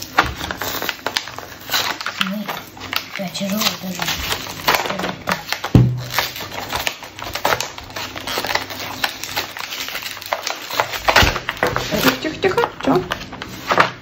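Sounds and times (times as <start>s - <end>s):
plastic packaging crackling: 0.0s - 14.0s.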